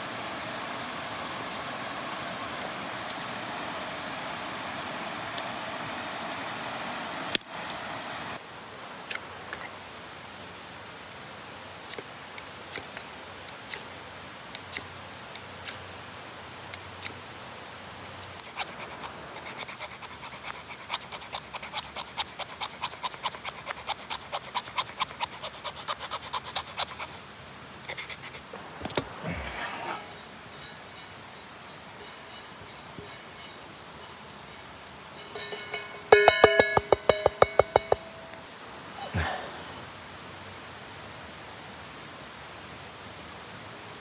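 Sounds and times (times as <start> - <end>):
knife scraping wooden stick: 18.4 - 35.8, 38.9 - 41.6, 42.3 - 44.0
sharp knock: 36.2 - 38.2.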